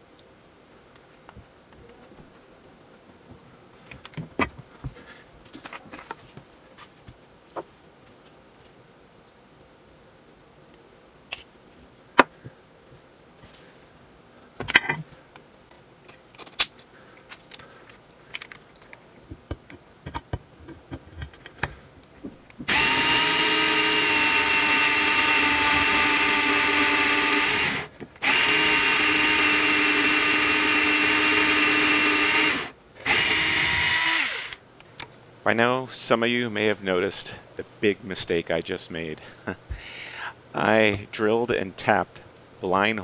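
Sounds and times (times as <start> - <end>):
electric drill boring into metal: 22.7 - 34.6.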